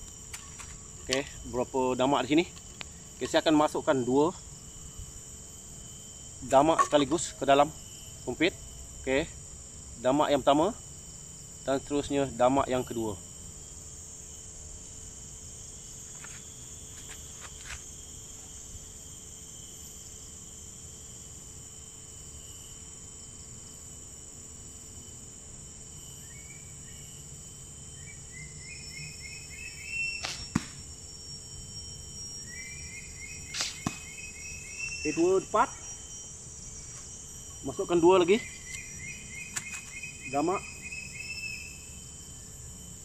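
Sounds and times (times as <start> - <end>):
insects chorus: 0.0 - 43.0
blowpipe dart shots: 30.2 - 30.8, 33.5 - 34.1.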